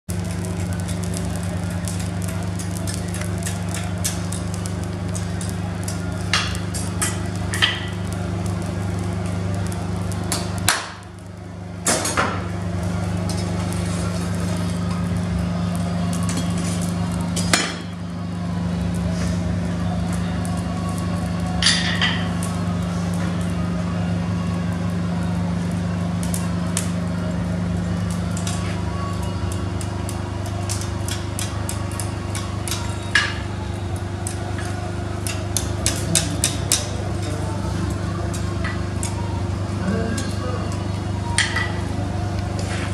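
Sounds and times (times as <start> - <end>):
steady low hum: 0.1 - 42.9.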